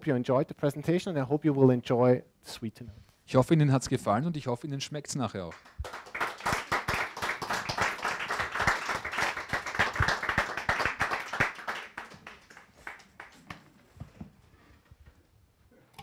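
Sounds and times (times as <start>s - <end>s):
audience applauding: 5.5s - 13.6s.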